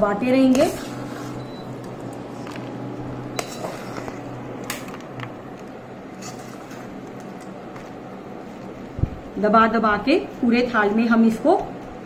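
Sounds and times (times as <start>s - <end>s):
steady low hum: 0.0s - 12.0s
spatula scraping sticky mixture: 3.4s - 4.2s, 6.2s - 7.0s.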